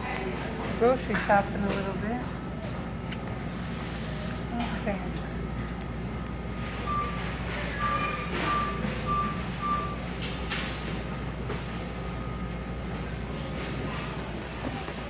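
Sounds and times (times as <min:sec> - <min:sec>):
store background noise: 0:00.0 - 0:15.0
short electronic beeps: 0:06.8 - 0:10.1.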